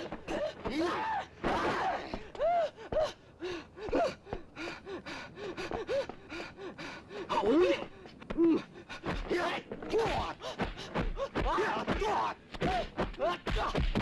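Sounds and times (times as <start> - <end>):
men shouting and grunting: 0.0 - 3.1, 7.3 - 13.9.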